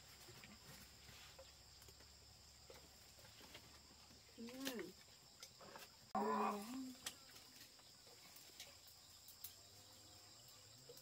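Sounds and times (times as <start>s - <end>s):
high insect noise: 0.0s - 11.0s.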